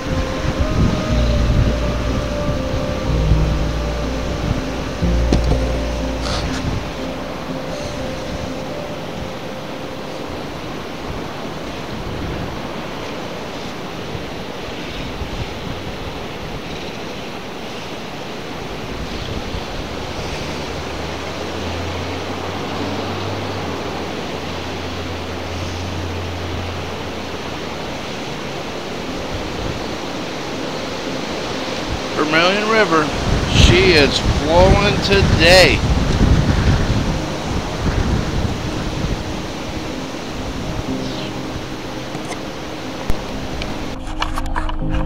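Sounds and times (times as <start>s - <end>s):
low hum: 0.0s - 14.0s
river water rushing: 0.0s - 45.0s.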